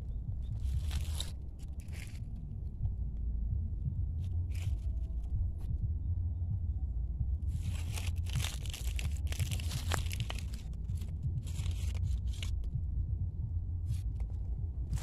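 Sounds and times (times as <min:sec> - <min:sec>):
low rumble: 0:00.0 - 0:15.0
rustling and crunching: 0:00.6 - 0:02.4, 0:07.5 - 0:12.6.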